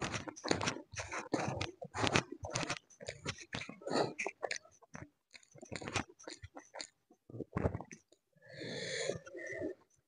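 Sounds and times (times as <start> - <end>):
chewing and wet mouth sounds: 0.0 - 8.2.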